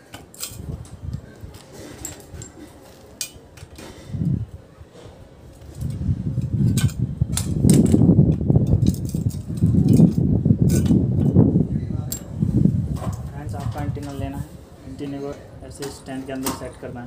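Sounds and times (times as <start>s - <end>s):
metal clinks of bolt and spanner: 0.1s - 3.9s.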